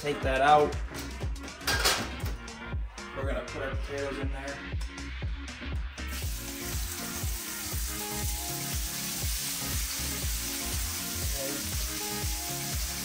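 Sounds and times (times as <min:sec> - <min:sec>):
potatoes sizzling in hot oil: 0:06.2 - 0:13.0.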